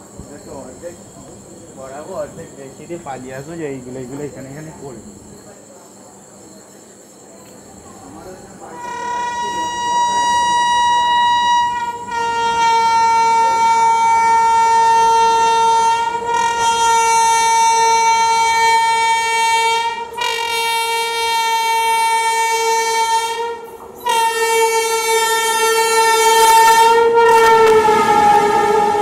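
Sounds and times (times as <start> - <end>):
rush of passing train: 0.0 - 29.0
train horn blasts: 8.6 - 29.0.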